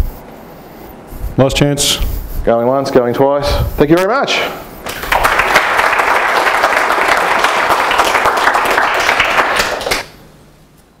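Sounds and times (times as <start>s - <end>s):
audience applauding: 4.8s - 10.1s.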